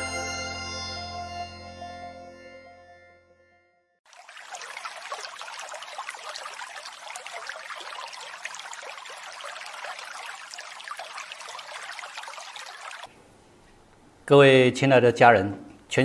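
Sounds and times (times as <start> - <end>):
stream water rushing and splashing: 4.1 - 13.1.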